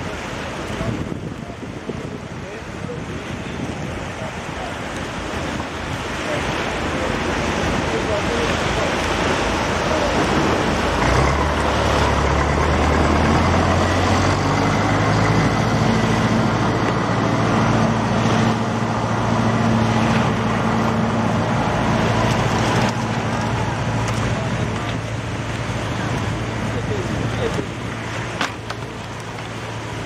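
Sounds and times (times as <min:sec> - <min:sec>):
surf washing: 0:00.0 - 0:30.0
tractor engine running: 0:08.8 - 0:30.0.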